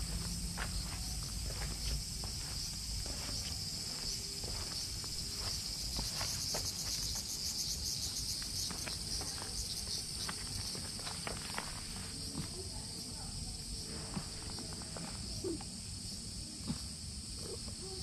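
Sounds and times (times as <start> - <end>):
footsteps on gravel: 0.0 - 12.6
chorus of insects: 0.0 - 18.0.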